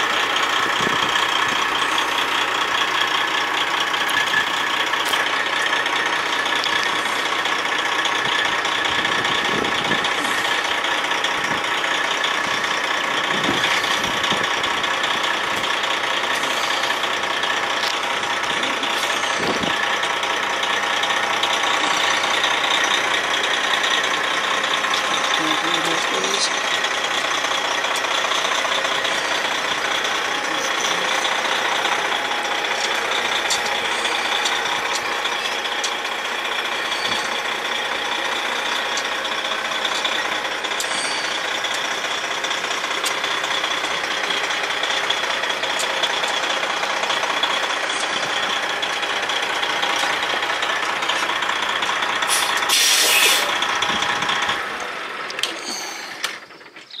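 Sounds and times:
diesel truck engine idling: 0.0 - 57.0
air hiss: 52.3 - 53.5.

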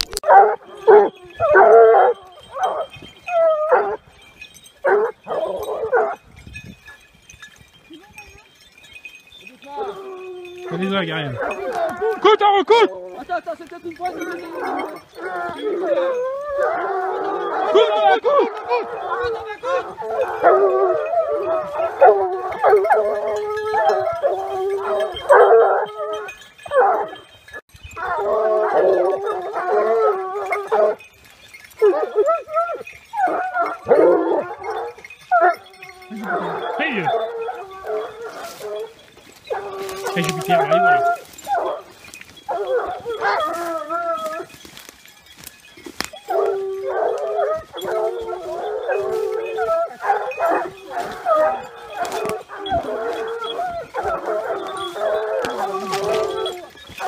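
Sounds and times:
hounds baying: 0.0 - 57.0.

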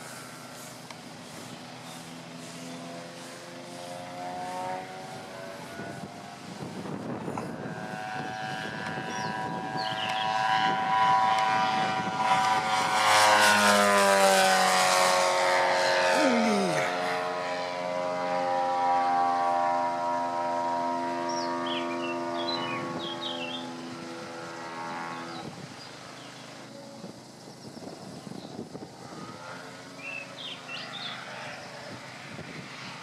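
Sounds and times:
model plane engine flying: 0.0 - 33.0.

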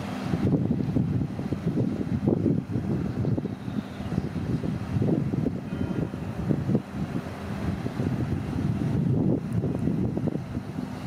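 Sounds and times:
wind buffeting microphone: 0.0 - 11.0.

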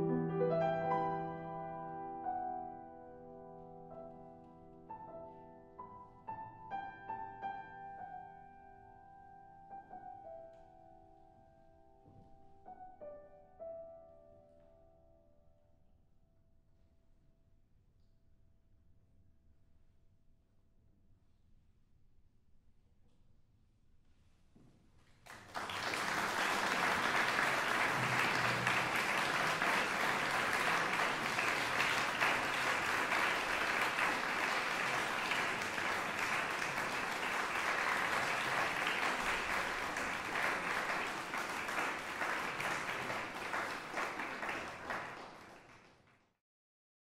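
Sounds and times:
audience applauding: 25.3 - 46.2.

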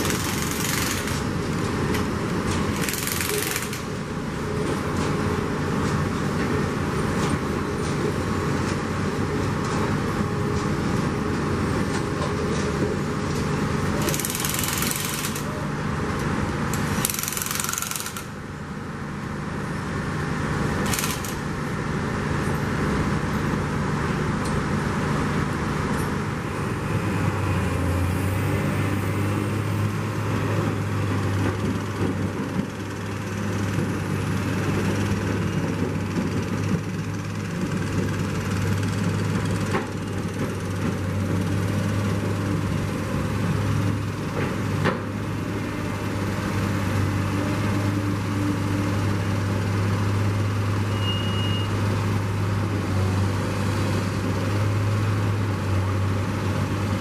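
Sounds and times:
power tool tightening bolts: 0.0 - 1.2, 2.7 - 3.8, 14.0 - 15.5, 16.7 - 18.3, 20.8 - 21.4
diesel engine running: 0.0 - 57.0.

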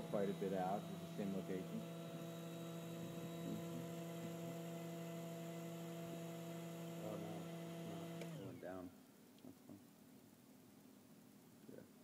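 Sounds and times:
electric fan motor humming: 0.0 - 8.9.

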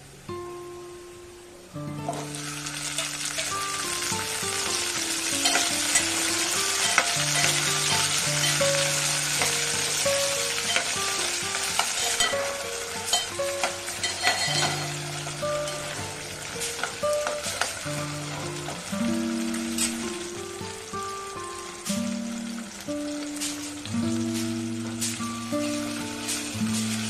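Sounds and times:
background music: 0.4 - 27.0
potatoes and onions sizzling in oil: 0.7 - 27.0
steel spoon scraping a pot: 5.4 - 6.1, 6.8 - 8.8, 14.0 - 15.0.

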